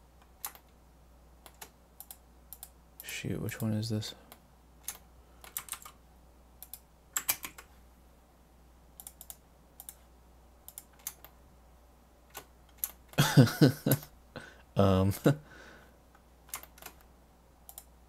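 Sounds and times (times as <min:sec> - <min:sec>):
computer keyboard typing: 0:00.3 - 0:00.7, 0:01.4 - 0:02.7, 0:04.8 - 0:06.0, 0:06.6 - 0:07.7, 0:09.0 - 0:10.0, 0:10.7 - 0:11.3, 0:12.3 - 0:13.2, 0:16.5 - 0:17.0, 0:17.7 - 0:17.9.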